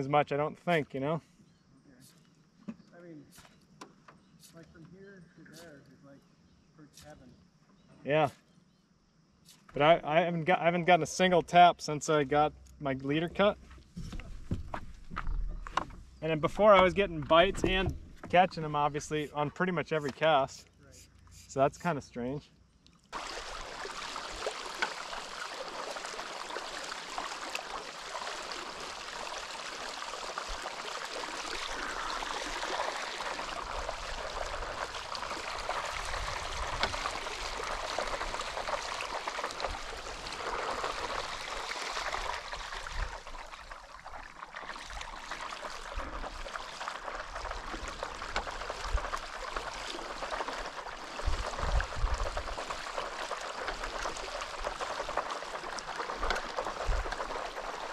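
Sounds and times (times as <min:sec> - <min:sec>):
water washing along paddleboard: 0:13.9 - 0:19.2, 0:23.1 - 0:57.9
wind rumble on microphone: 0:51.2 - 0:52.7.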